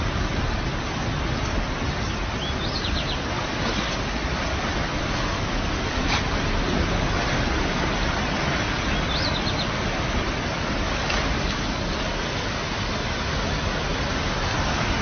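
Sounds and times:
floodwater rushing: 0.0s - 15.0s
bird chirp: 2.0s - 3.2s, 8.8s - 9.8s.

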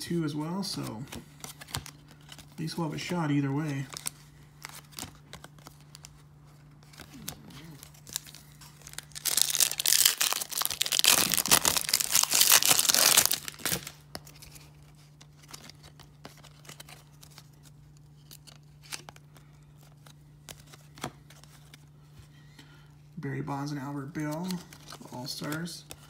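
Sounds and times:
wrapper tearing and crinkling: 6.8s - 14.7s.

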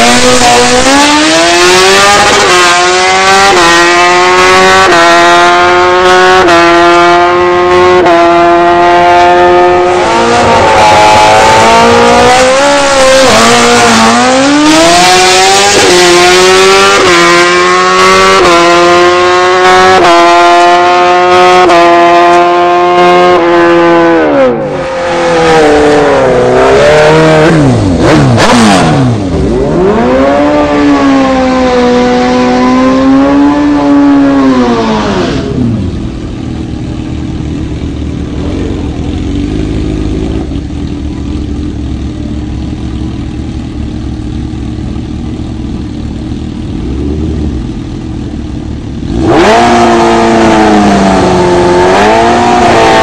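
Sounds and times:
engine revving: 0.0s - 41.8s, 46.6s - 53.0s
racing engine with gear changes: 0.0s - 53.0s
motorcycle engine idling: 35.9s - 49.2s.

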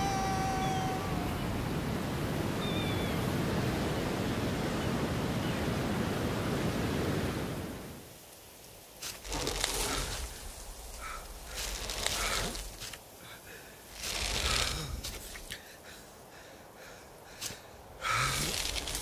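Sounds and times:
sea surf: 0.0s - 8.1s.

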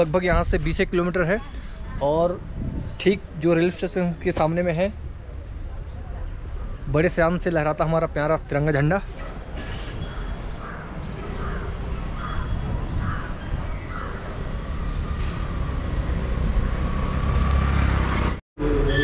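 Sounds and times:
wind rumble on microphone: 1.8s - 3.4s, 11.4s - 17.6s
crows cawing: 10.0s - 14.3s.

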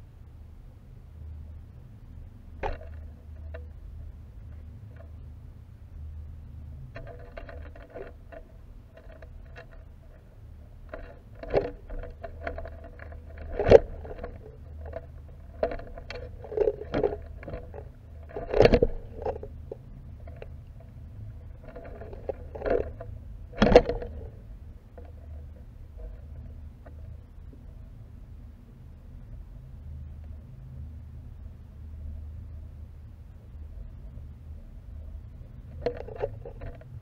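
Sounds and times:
steady low rumble: 0.0s - 37.0s
knocks and scrapes: 2.6s - 3.8s, 6.9s - 27.1s, 35.6s - 37.0s.

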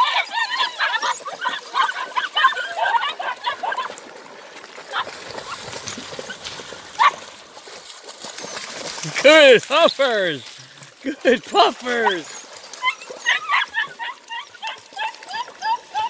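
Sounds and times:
puppies whining and yipping: 0.0s - 3.9s, 12.0s - 16.0s
puppy yelp: 0.0s - 3.9s, 7.0s - 7.2s, 12.0s - 16.0s
water splashing: 0.8s - 16.0s.

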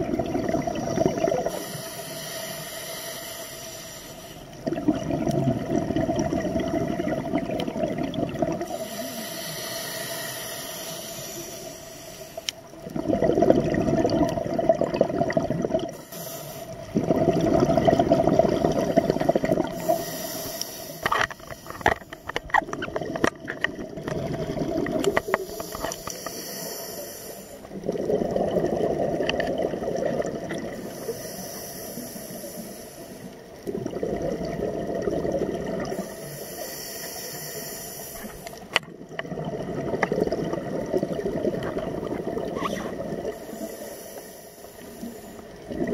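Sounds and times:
exhaled air bubbling: 0.0s - 45.9s
regulator hiss on inhale: 1.3s - 4.6s, 8.6s - 12.8s, 15.8s - 16.9s, 19.6s - 22.5s, 25.0s - 27.8s, 30.7s - 33.7s, 35.8s - 38.8s, 42.6s - 45.7s.

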